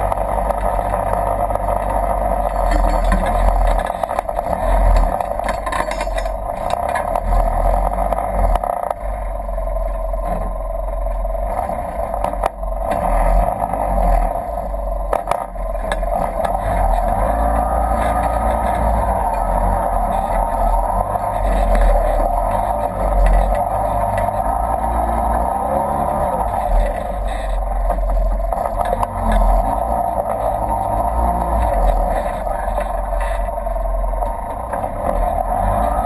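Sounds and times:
engine running at low speed: 0.0s - 36.0s
tyres knocking over rocks: 2.4s - 7.0s.

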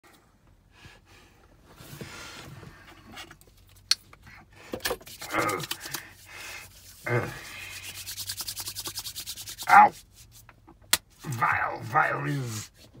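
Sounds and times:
hands rubbing together: 5.0s - 11.3s
man's short vocal noises: 5.2s - 5.9s, 7.0s - 7.5s, 11.2s - 12.7s.

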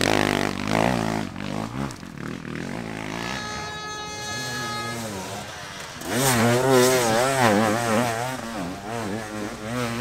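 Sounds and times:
dirt bike engine revving: 0.0s - 10.0s.

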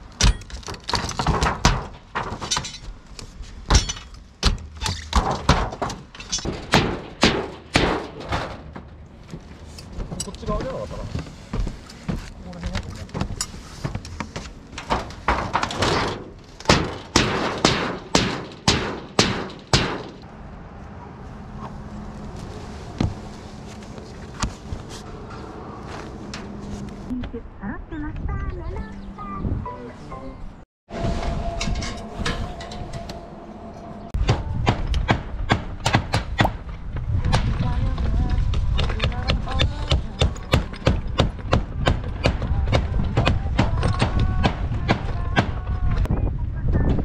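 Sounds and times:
sharp bangs on metal sheeting: 1.1s - 2.5s, 3.7s - 8.8s, 14.9s - 20.2s
low rumble: 20.2s - 47.0s.

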